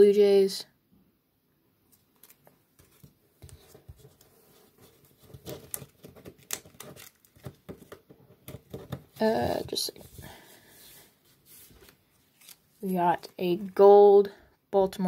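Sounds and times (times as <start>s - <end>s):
cards tapping and rustling: 2.2s - 10.4s.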